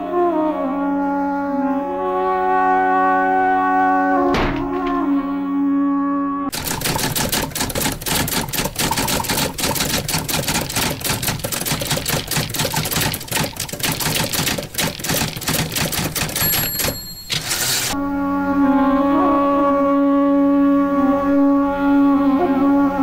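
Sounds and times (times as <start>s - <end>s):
typewriter keys clacking: 6.5s - 18.0s
typewriter bell ding: 6.6s - 18.0s.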